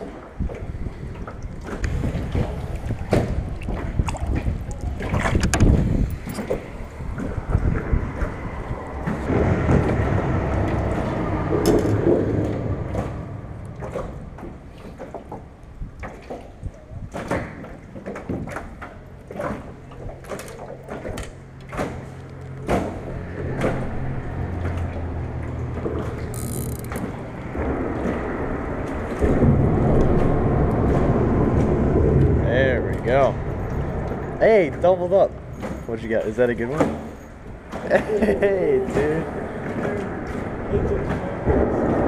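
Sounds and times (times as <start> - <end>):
fishing reel clicks and knocks: 26.2 - 27.1.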